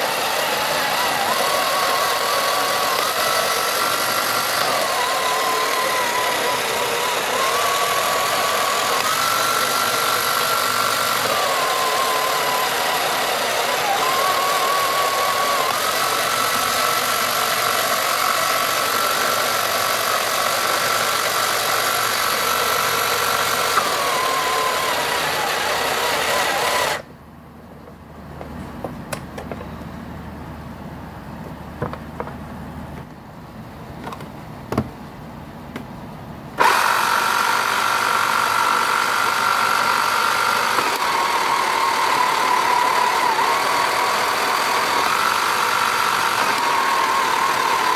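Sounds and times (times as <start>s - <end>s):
toy motor whirring and whining: 0.0s - 27.1s, 36.6s - 47.9s.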